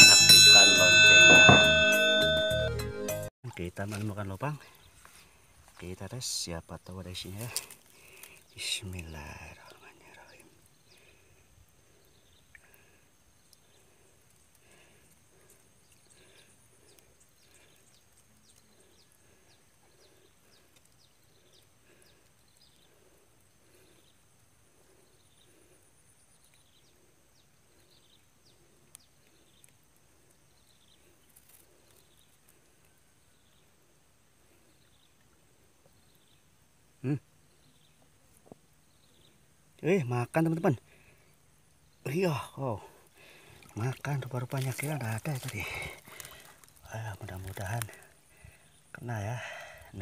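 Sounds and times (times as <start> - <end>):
high falling chirps: 0.0 - 3.3.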